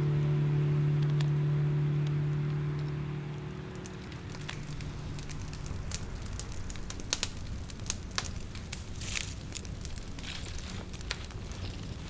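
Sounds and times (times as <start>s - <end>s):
campfire crackling: 0.2s - 12.0s
fire hissing: 3.6s - 12.0s.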